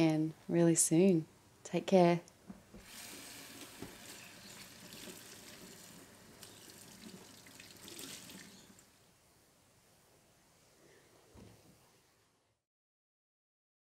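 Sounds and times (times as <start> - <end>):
tap running into sink: 2.8 - 8.6.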